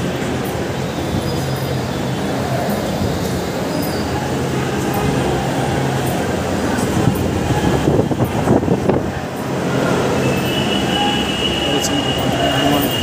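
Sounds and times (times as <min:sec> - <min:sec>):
wind gusts on microphone: 0:06.8 - 0:10.2.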